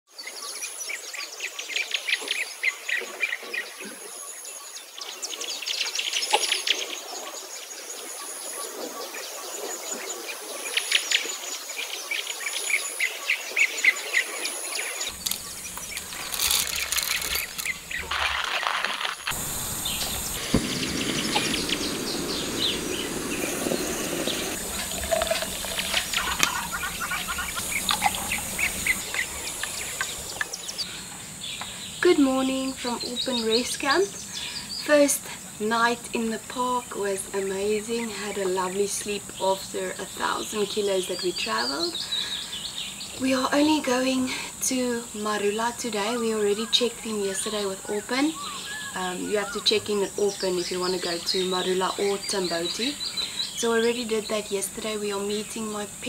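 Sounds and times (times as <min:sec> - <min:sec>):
birds chirping and whistling: 0:13.8 - 0:34.9, 0:46.2 - 0:55.6
low steady noise: 0:15.0 - 0:48.2
high pulsing buzz: 0:19.2 - 0:30.9.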